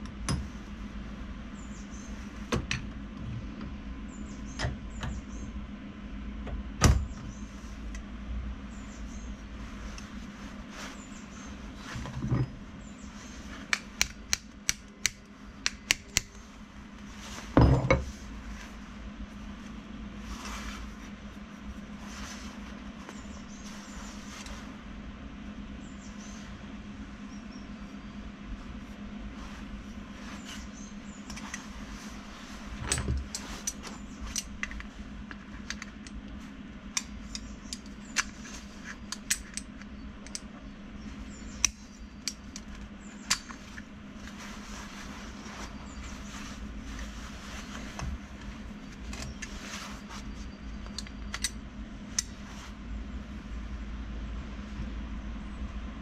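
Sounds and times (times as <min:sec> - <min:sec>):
steady low hum: 0:00.0 - 0:56.0
metallic clicks of pliers: 0:39.0 - 0:40.5.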